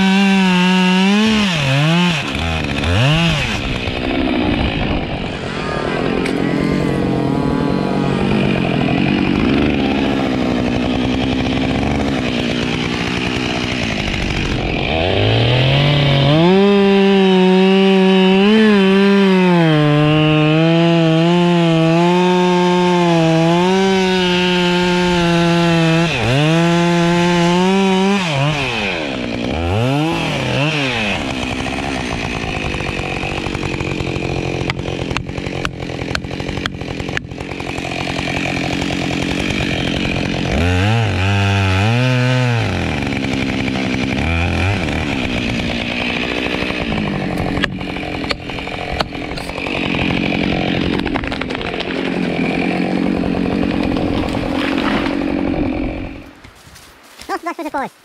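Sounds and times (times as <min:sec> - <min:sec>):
chainsaw revving in a cut: 0:00.0 - 0:56.4.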